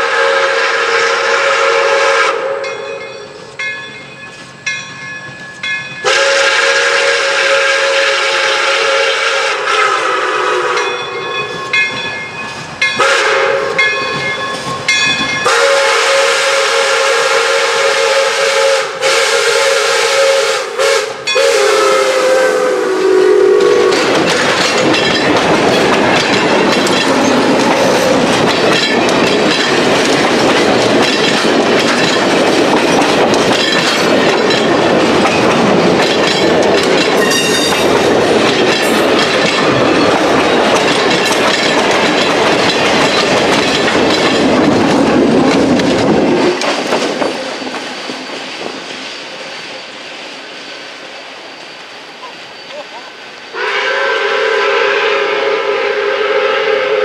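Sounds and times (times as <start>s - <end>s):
steam whistle blasts: 0.0s - 3.0s, 6.0s - 11.2s, 13.0s - 13.8s, 15.4s - 24.2s, 53.5s - 57.0s
train coaches rumbling past: 0.0s - 57.0s
wheels clacking over rail joints: 23.5s - 50.3s.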